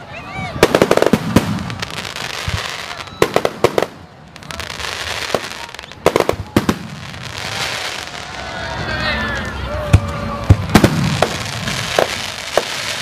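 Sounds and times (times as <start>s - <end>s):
firework bangs: 0.5s - 8.5s, 9.9s - 13.0s
crackling hiss: 10.1s - 13.0s.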